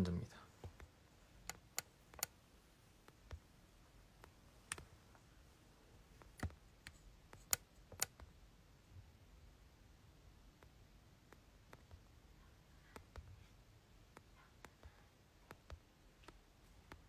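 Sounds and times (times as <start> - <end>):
faint scattered clicks: 0.0 - 2.4, 3.0 - 5.3, 6.1 - 8.4, 10.5 - 17.0
faint room hum: 0.0 - 17.0.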